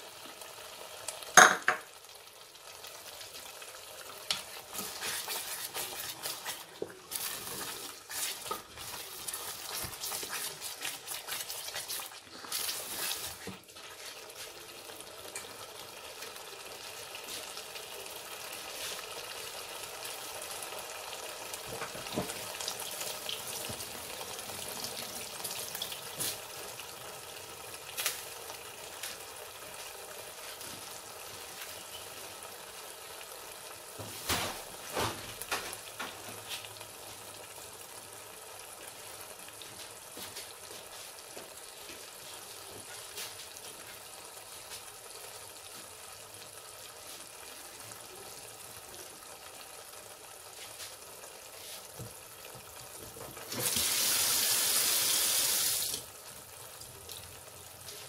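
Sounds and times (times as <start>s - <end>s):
food sizzling in a steel pot: 0.0s - 58.0s
wooden spatula knocking on pot: 1.4s - 1.9s.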